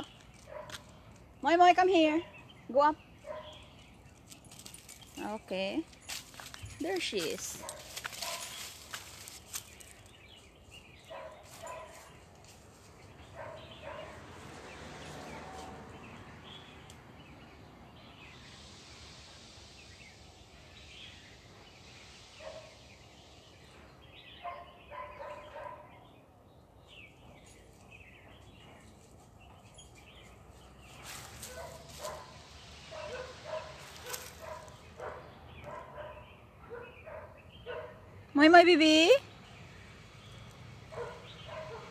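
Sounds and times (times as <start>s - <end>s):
dry leaves crackling underfoot: 3.2s - 13.4s, 30.1s - 35.1s.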